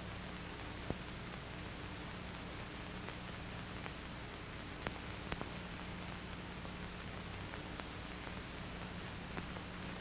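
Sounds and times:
film soundtrack hiss and hum: 0:00.0 - 0:10.0
faint clicks: 0:04.8 - 0:05.5.

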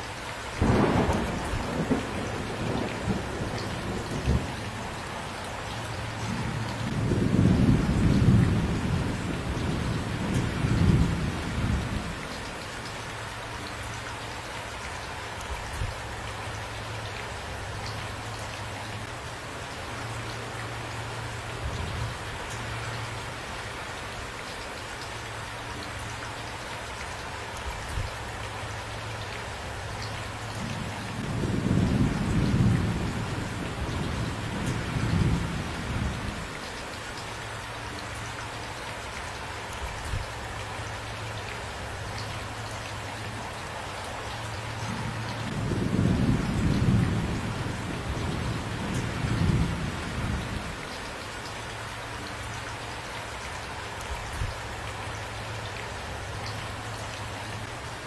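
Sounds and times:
steady rainfall: 0:00.0 - 0:58.0
low rolls of thunder: 0:00.6 - 0:05.1, 0:06.2 - 0:12.2, 0:30.7 - 0:36.5, 0:44.9 - 0:50.8.

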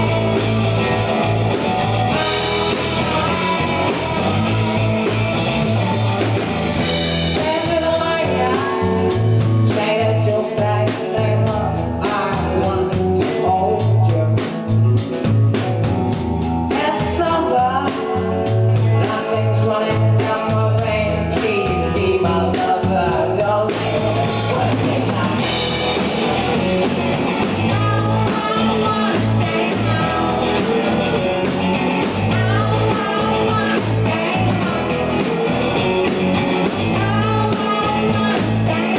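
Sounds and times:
live rock band playing: 0:00.0 - 0:38.9
male lead vocal singing: 0:07.4 - 0:14.6, 0:16.7 - 0:18.1, 0:18.8 - 0:25.6, 0:27.6 - 0:31.2, 0:32.2 - 0:35.6, 0:36.8 - 0:38.9.

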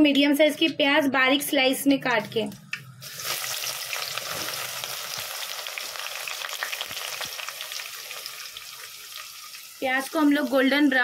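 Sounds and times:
onions sizzling in hot oil: 0:03.0 - 0:11.0.

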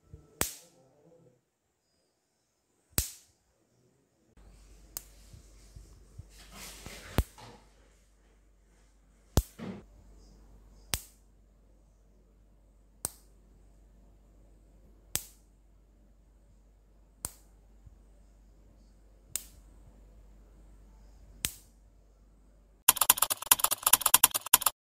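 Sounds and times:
high-voltage spark snaps: 0:00.4 - 0:00.7, 0:03.0 - 0:03.3, 0:10.9 - 0:11.2, 0:15.1 - 0:15.4, 0:19.3 - 0:19.6, 0:21.4 - 0:21.7
faint electrical hum: 0:01.6 - 0:23.9
rapid clicking: 0:22.9 - 0:24.8.

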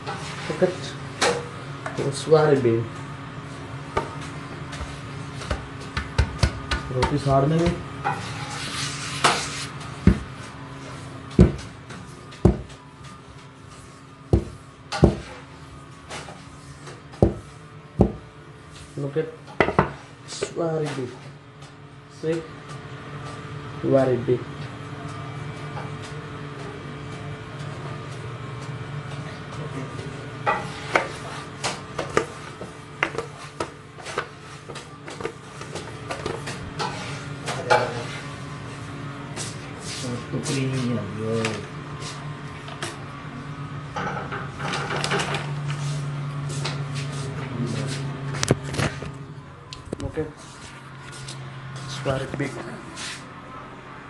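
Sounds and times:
dough slapping on counter: 0:05.4 - 0:07.8, 0:14.3 - 0:15.3, 0:17.2 - 0:18.3.

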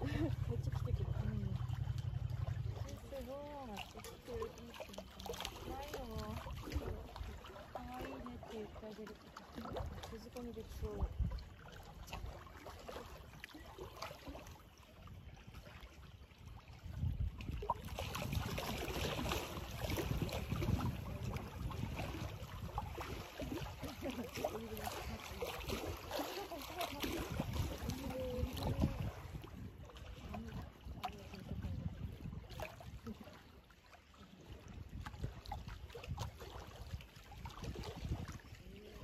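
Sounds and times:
low rumble: 0:00.0 - 0:03.7
wind noise on microphone: 0:10.7 - 0:12.4, 0:16.4 - 0:26.0, 0:26.9 - 0:33.2, 0:34.6 - 0:39.0.

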